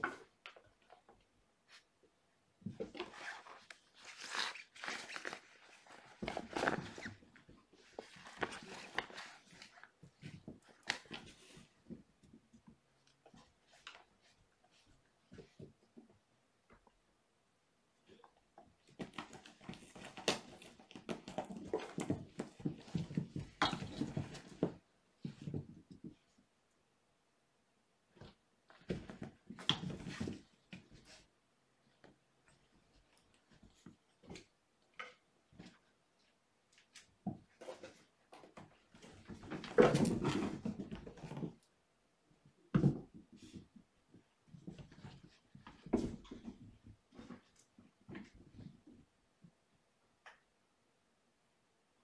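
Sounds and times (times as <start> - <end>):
kittens' paws scrabbling and thumping: 18.7 - 26.3, 28.2 - 31.2, 36.8 - 41.6.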